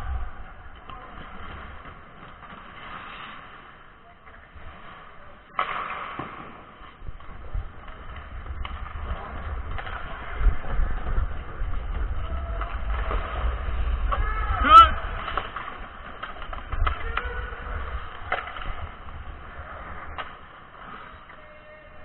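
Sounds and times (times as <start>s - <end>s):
skates scraping on ice: 0.0s - 22.0s
wind rumble on microphone: 7.0s - 20.2s.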